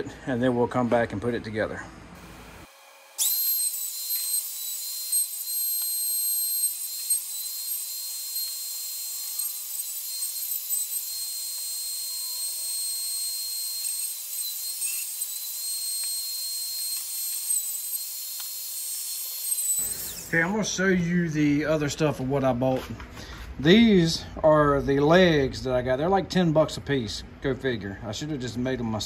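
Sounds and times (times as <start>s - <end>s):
router whining at full speed: 2.2s - 20.6s.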